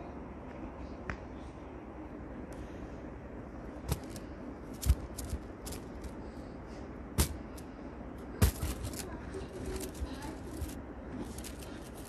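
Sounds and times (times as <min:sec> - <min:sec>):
plastic toys clicking: 0:04.8 - 0:06.2.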